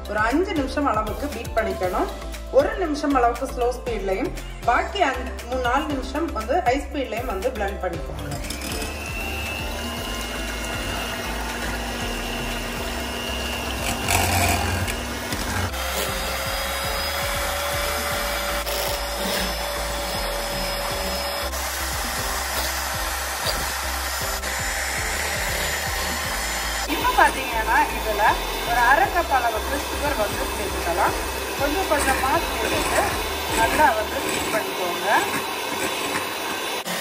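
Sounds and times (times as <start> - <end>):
electric hand mixer whining: 7.4 - 37.0
beaters whisking in glass bowl: 8.2 - 36.8.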